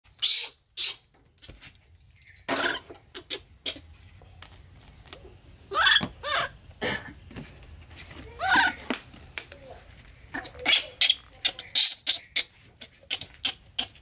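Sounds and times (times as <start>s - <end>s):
baby monkey squealing: 0.2s - 1.1s, 5.7s - 6.6s, 10.3s - 14.0s.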